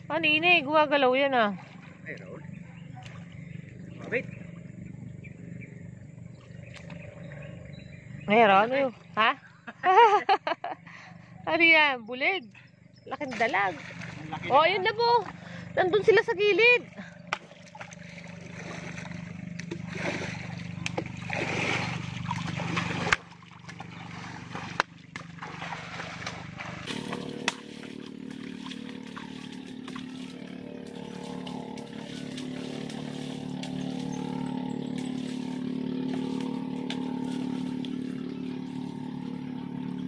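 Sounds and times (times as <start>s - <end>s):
steady low hum: 0.0s - 40.0s
water sloshing from wading: 0.0s - 40.0s.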